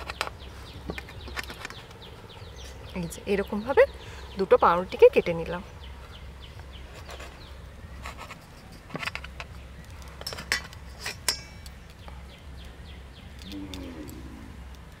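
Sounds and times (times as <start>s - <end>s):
knife clinking on metal plate: 10.3s - 11.7s.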